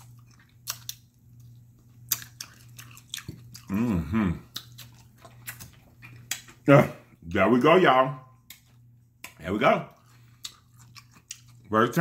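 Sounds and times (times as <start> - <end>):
chewing and lip smacking: 0.0 - 6.7, 8.4 - 12.0
person humming: 3.7 - 4.5.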